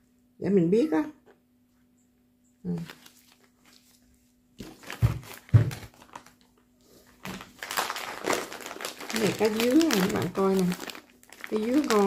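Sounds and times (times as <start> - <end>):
plastic bags crinkling: 2.7 - 12.0
packages thudding on table: 4.6 - 6.2.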